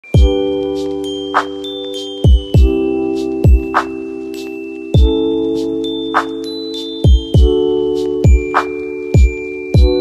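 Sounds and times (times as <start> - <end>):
deep kick drum: 7.1 - 7.6.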